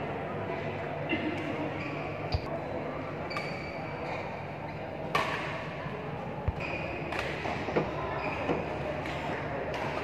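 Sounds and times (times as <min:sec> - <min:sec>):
murmur of spectators: 0:00.0 - 0:10.0
racket hitting shuttlecock: 0:05.1 - 0:05.6.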